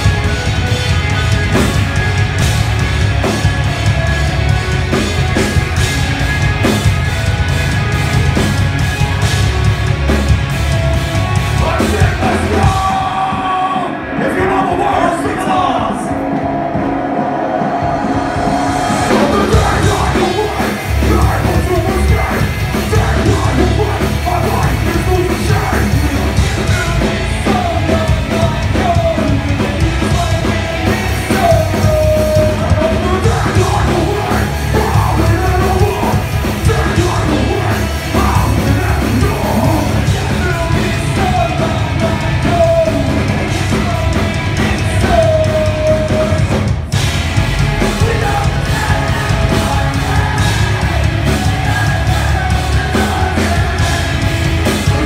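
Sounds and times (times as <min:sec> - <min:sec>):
metal band playing: 0:00.0 - 0:55.0
shouted and sung vocals: 0:11.5 - 0:46.9, 0:47.8 - 0:55.0.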